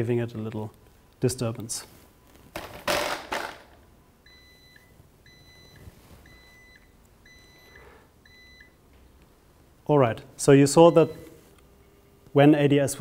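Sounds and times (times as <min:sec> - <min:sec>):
faint high alarm beeps: 0:04.2 - 0:08.8, 0:10.8 - 0:11.4.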